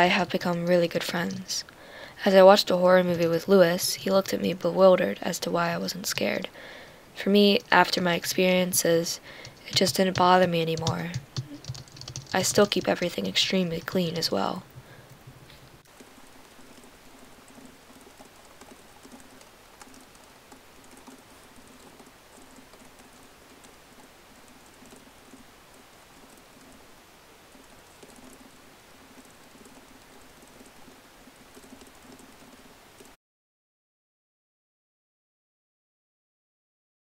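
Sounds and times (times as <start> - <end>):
laptop keyboard typing: 7.4 - 26.8, 27.5 - 28.5, 29.1 - 30.9, 31.5 - 33.1.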